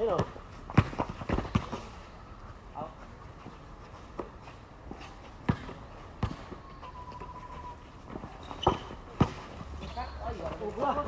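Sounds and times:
basketball bouncing on hard court: 0:00.0 - 0:01.8, 0:05.4 - 0:06.5.

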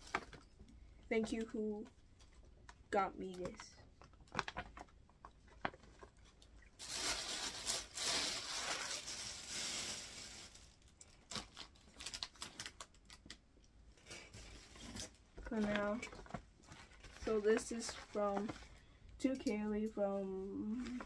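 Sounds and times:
paper rustling and crinkling: 0:00.0 - 0:00.6, 0:03.4 - 0:13.4, 0:14.0 - 0:18.8.

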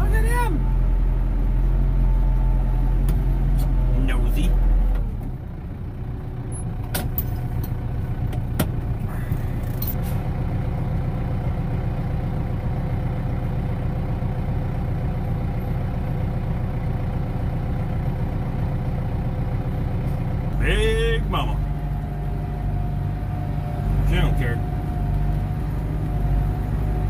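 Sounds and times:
tractor diesel engine running: 0:00.0 - 0:27.0.

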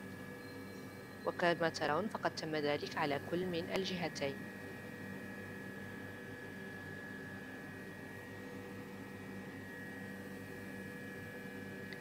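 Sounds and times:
thin high whine: 0:00.0 - 0:04.4
machine hum: 0:00.0 - 0:12.0.

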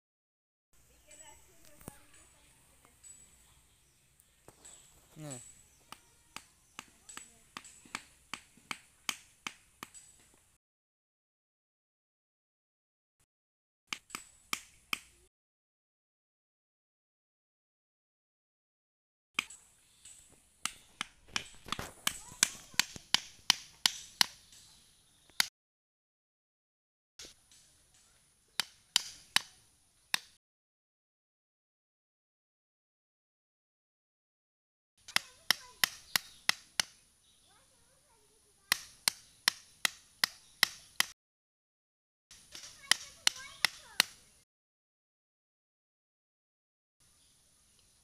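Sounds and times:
blade chopping wood: 0:20.6 - 0:24.7, 0:28.5 - 0:30.4, 0:35.0 - 0:37.0, 0:38.7 - 0:41.2, 0:42.3 - 0:44.2
hammer striking wooden stick: 0:28.6 - 0:29.6, 0:35.1 - 0:37.0, 0:38.7 - 0:41.2.

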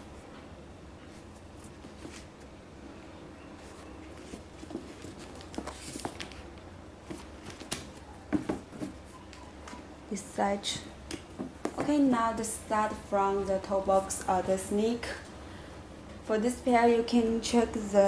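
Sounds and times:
sneakers handled taps and rustles: 0:01.6 - 0:02.5, 0:03.6 - 0:09.8, 0:11.0 - 0:12.1
shoes knocking on cardboard box: 0:08.3 - 0:09.1, 0:11.4 - 0:12.0.

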